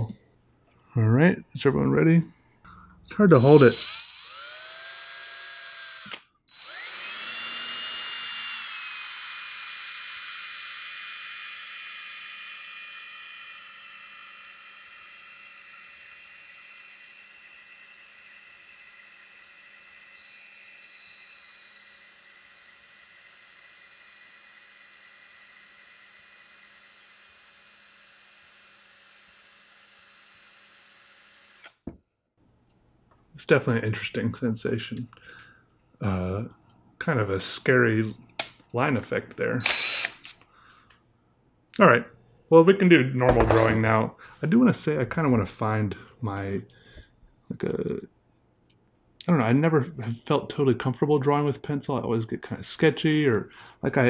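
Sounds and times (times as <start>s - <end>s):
cordless drill motor whine: 3.4s - 31.9s, 39.6s - 40.4s.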